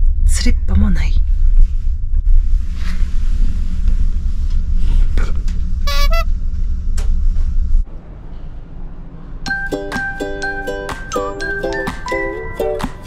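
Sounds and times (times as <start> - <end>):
ferry engine rumble: 0.0 - 9.5
short horn toot: 5.9 - 6.3
light music with bell-like notes: 9.5 - 13.0.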